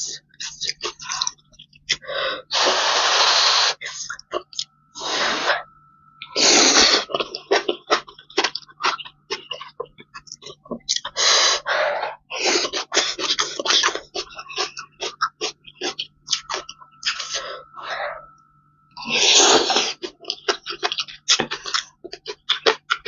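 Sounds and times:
person slurping noodles: 2.5s - 4.2s, 5.0s - 5.6s, 6.3s - 9.0s, 19.0s - 21.0s
wet chewing mouth clicks: 6.2s - 11.1s, 12.7s - 17.4s, 19.7s - 23.0s.

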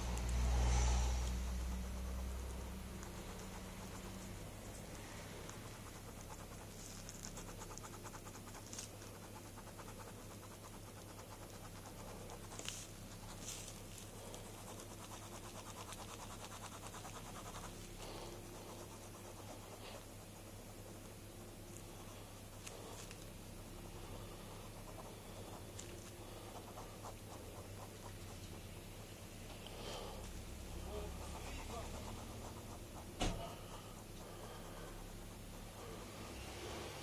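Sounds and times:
sharp pen ticks: 0.0s - 13.4s, 14.0s - 21.1s, 30.9s - 35.8s
pen scratching on paper: 0.0s - 37.0s
steady low hum: 0.0s - 37.0s.

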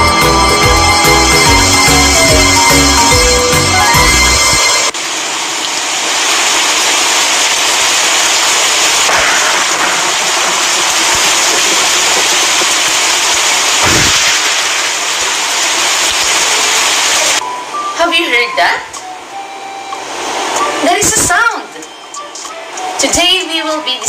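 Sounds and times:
loud hiss-like din: 4.8s - 18.1s, 19.0s - 21.7s.

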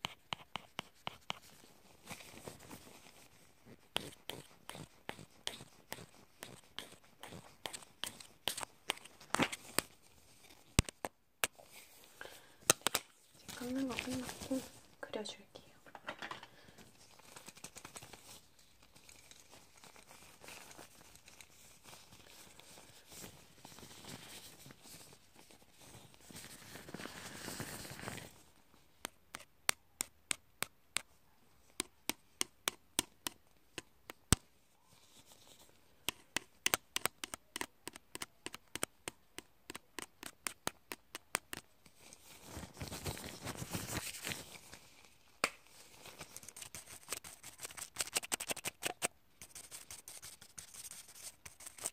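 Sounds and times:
rustling and scraping of tools: 15.8s - 17.2s.

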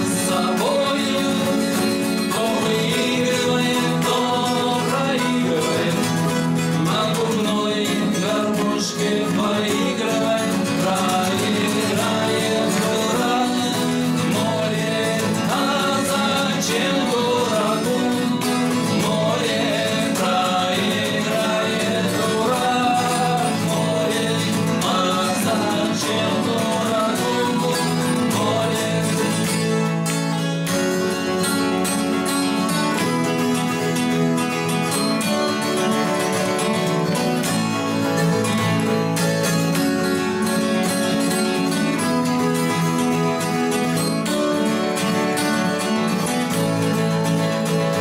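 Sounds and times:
men singing in duet: 0.0s - 30.1s
acoustic guitars playing: 0.0s - 48.0s.

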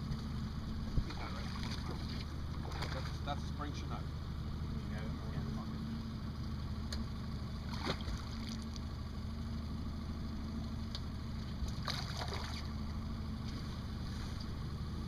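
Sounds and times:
outboard motor idling: 0.0s - 15.0s
fish splashing: 11.7s - 12.7s.

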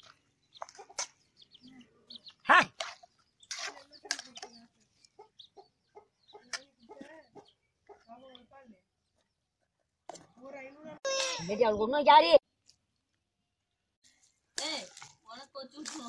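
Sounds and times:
chickens clucking: 0.0s - 8.4s
loud short chicken call: 11.0s - 11.5s.

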